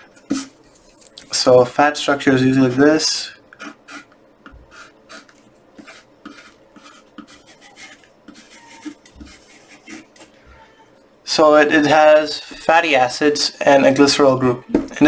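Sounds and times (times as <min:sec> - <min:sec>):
pencil writing on paper: 0:04.7 - 0:10.3.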